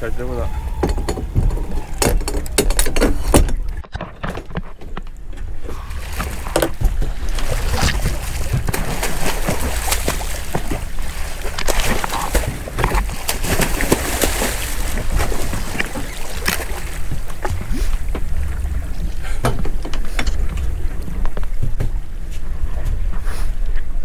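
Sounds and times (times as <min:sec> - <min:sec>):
water splashing: 0:00.0 - 0:19.3
steady low rumble: 0:16.6 - 0:24.0.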